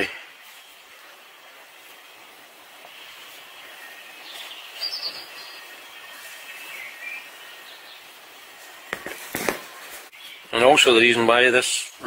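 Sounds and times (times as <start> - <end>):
outdoor background hiss: 0.0 - 12.0
faint bird chirps: 2.9 - 8.3.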